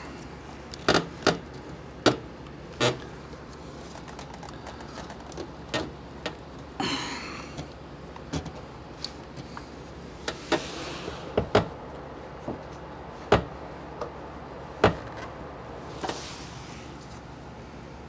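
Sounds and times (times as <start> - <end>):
soft rustling: 15.8 - 17.4.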